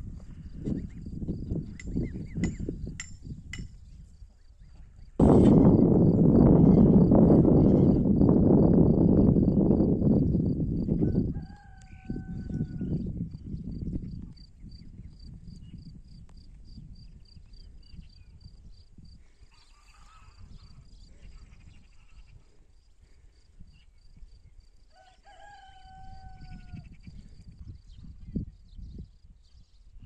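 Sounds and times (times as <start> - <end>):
farm animal call: 19.5 - 22.4, 25.0 - 27.1.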